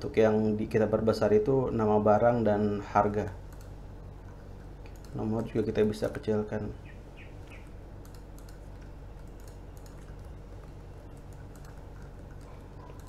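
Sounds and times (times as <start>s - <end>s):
steady low hum: 0.0s - 13.0s
keyboard and mouse clicks: 4.8s - 6.2s, 8.0s - 13.0s.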